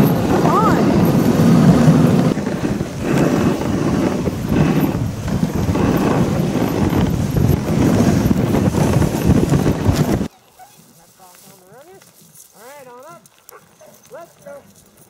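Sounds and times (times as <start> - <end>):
wind on microphone: 0.0 - 10.3
sled runners hissing on snow: 0.0 - 13.2
dogs' feet padding: 0.0 - 15.0.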